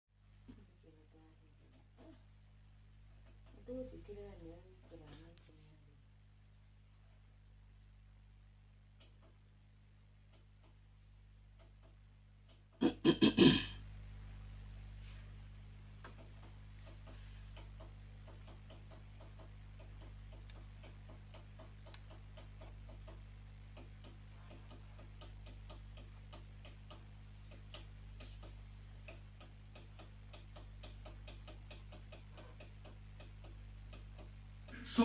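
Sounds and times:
steady low hum: 0.2 - 35.0
faint rapid ticking: 15.5 - 35.0.

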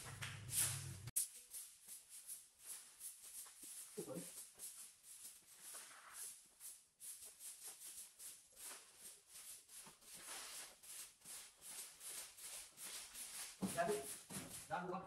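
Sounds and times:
brooms sweeping tiled floor: 0.0 - 14.8.

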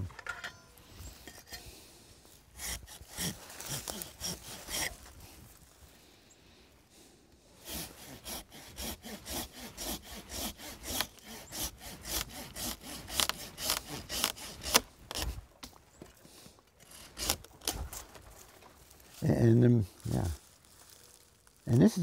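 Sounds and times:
hand saw cutting branch: 2.5 - 5.3, 7.6 - 15.4, 16.8 - 17.9.

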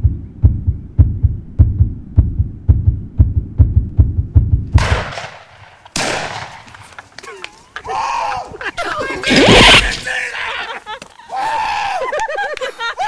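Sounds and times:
heartbeat thuds: 0.0 - 5.2.

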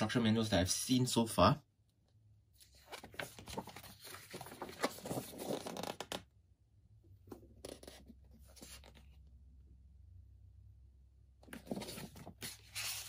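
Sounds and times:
paper pages rustling: 2.6 - 6.2, 7.6 - 9.1, 11.4 - 13.0.

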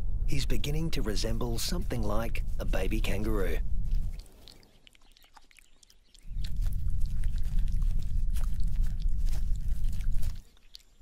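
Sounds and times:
muffled low rumble: 0.0 - 4.2, 6.3 - 10.4
wet licking clicks: 3.9 - 11.0.

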